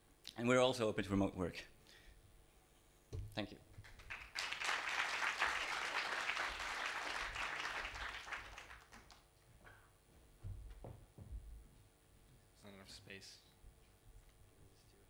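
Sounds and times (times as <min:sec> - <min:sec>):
audience applauding: 0:03.8 - 0:09.3.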